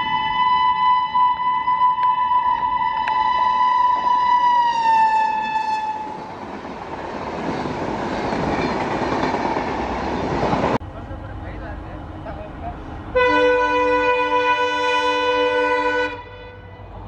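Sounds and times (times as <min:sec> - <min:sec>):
locomotive horn: 0:00.1 - 0:06.2, 0:13.1 - 0:17.0.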